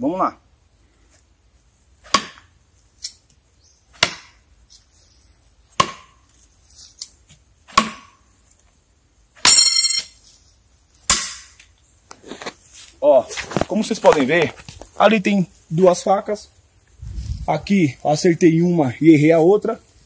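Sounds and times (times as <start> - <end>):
metallic ringing: 9.4 - 10.2.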